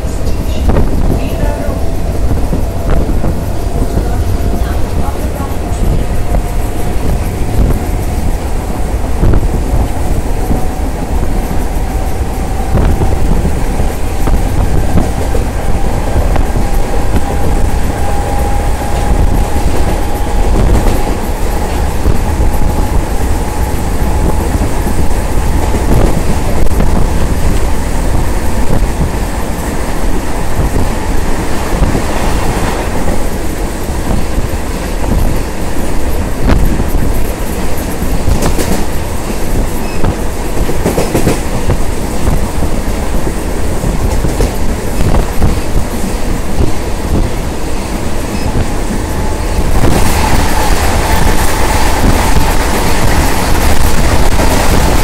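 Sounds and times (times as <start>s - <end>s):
train wheels rumbling on rail: 0.0s - 55.0s
clacks over rail joints: 31.5s - 55.0s.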